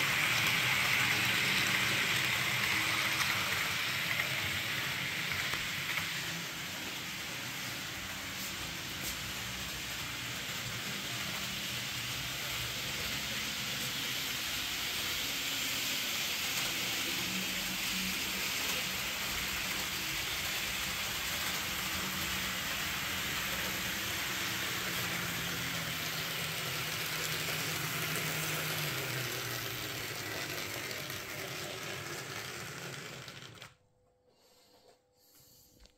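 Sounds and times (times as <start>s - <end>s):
model train rushing hiss: 0.0s - 32.6s.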